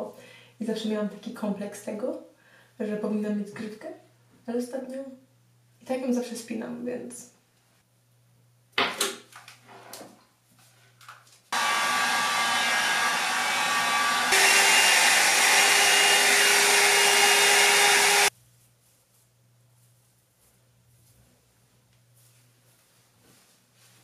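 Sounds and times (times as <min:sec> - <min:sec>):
hot-air brush blowing: 0:11.6 - 0:18.3.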